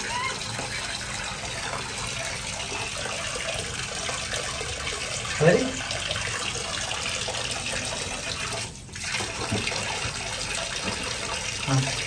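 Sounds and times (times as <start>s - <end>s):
water from tap splashing into basin: 0.0s - 12.0s.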